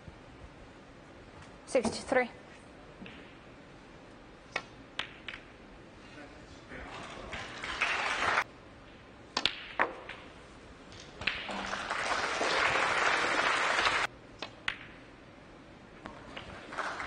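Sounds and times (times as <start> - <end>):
snooker balls clicking: 4.5 - 5.6, 8.8 - 11.7, 14.4 - 15.1
audience applause: 7.3 - 8.4, 11.5 - 14.1, 16.6 - 17.0.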